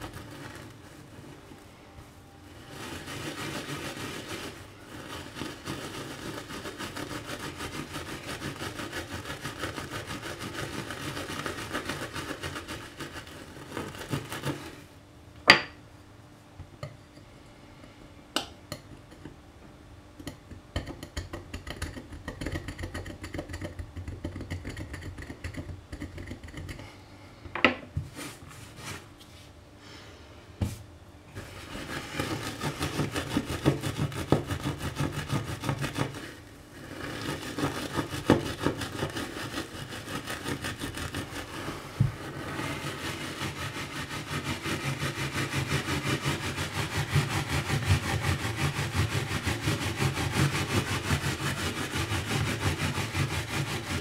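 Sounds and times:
steel wool scrubbing: 0.0 - 1.5, 2.4 - 14.9, 31.3 - 54.0
knife blade scraping hob: 31.5 - 54.0.

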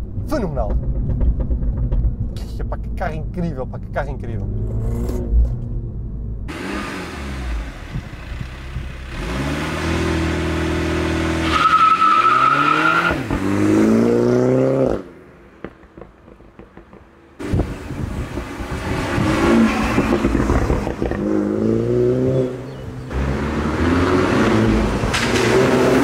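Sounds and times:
car engine accelerating hard: 6.4 - 15.1, 17.4 - 26.0.

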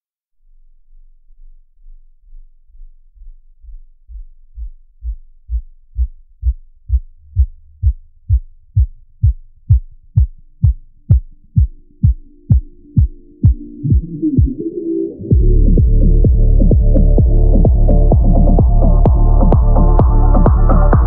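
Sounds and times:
kick drum beat: 4.6 - 14.6, 15.3 - 21.0
sustained synth tones: 11.5 - 21.0.

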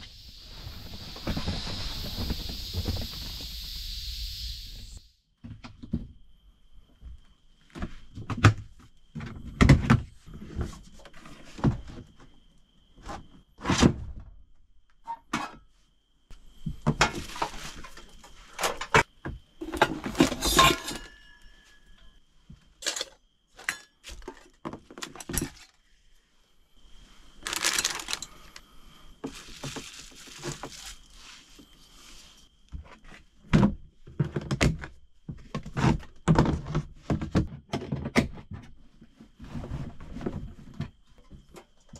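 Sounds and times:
bubble wrap rustling: 27.4 - 28.4, 29.2 - 31.4.

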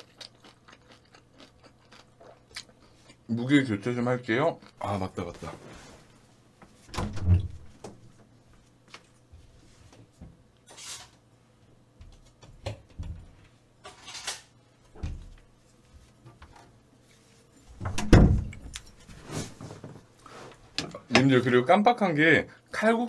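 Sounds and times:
cupboards and drawers knocking: 17.8 - 18.6.

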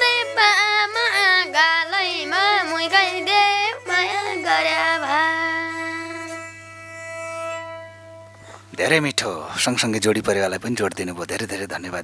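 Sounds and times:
boy singing: 0.0 - 6.4.

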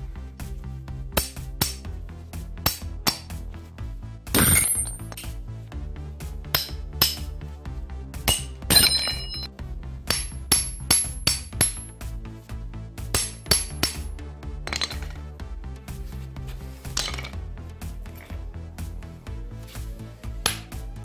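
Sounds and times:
background music: 0.0 - 21.0
hammer striking hammer head: 1.2 - 1.8, 2.6 - 3.3, 6.5 - 7.3, 8.2 - 9.5, 10.1 - 11.9, 13.1 - 15.2, 20.4 - 20.7.

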